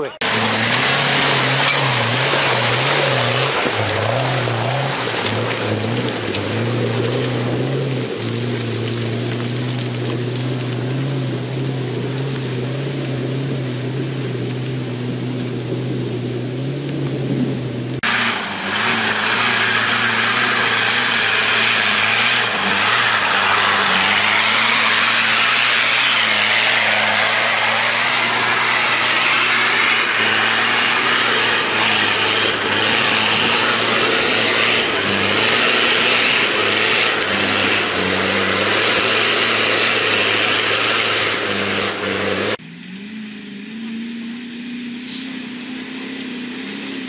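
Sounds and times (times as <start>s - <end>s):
off-road engine revving: 0.0s - 47.0s
tyres hissing on stones: 18.0s - 41.3s.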